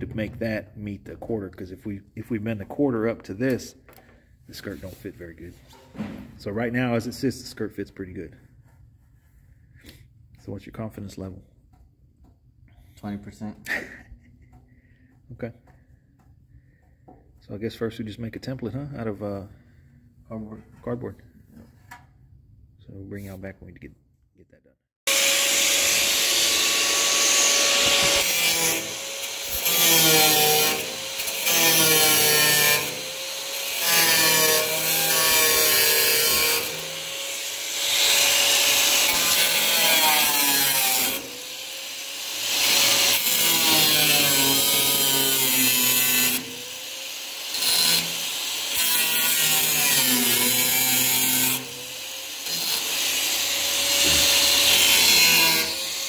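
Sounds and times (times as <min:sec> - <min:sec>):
grinder cutting sheet metal: 0:25.1 - 0:56.0.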